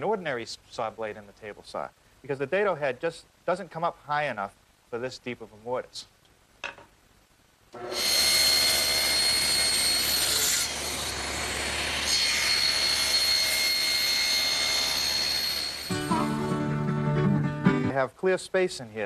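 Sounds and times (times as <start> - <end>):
table saw cutting wood: 7.8 - 16.5.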